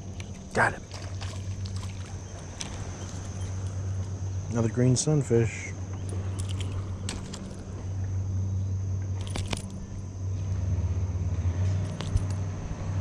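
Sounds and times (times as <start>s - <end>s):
steady low rumble: 0.0s - 13.0s
metallic clicks and jingles of lure: 5.9s - 7.7s, 9.2s - 10.1s, 11.6s - 12.5s.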